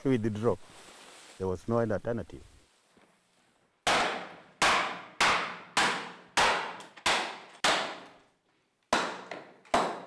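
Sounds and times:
hammer striking bone: 0:03.9 - 0:08.2, 0:08.9 - 0:10.0.

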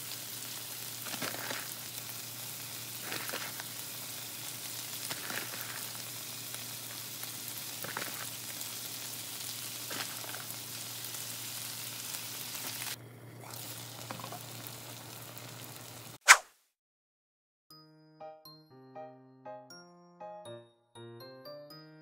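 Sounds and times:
food sizzling in a frying pan: 0:00.0 - 0:16.2.

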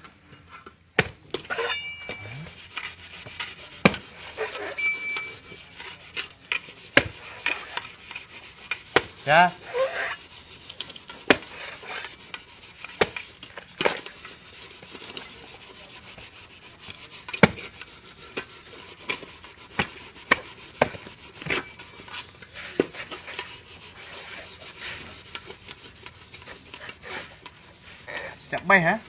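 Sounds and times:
knife striking coconut husk: 0:01.0 - 0:06.0, 0:06.6 - 0:10.2, 0:10.8 - 0:14.1, 0:16.3 - 0:22.1
blade scraping husk: 0:01.4 - 0:29.0.

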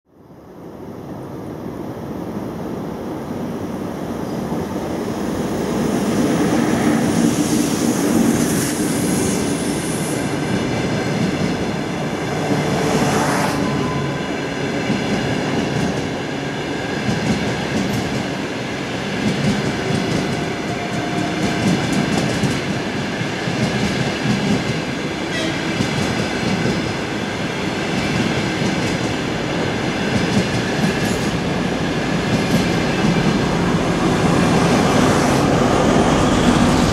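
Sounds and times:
train wheels clattering on rails: 0:06.3 - 0:11.9, 0:14.5 - 0:36.9.

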